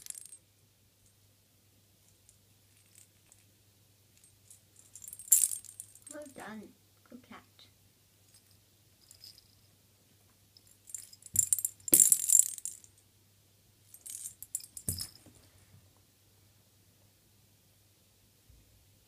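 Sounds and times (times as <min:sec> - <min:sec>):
metal tag jingling: 0:10.6 - 0:12.9, 0:14.0 - 0:15.3.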